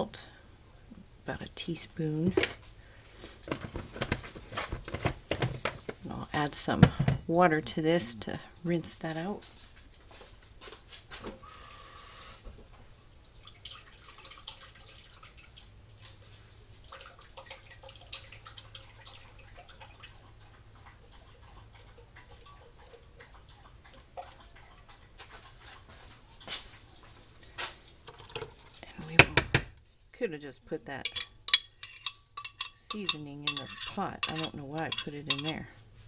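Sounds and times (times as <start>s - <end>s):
tap water running into jar: 31.0s - 35.7s.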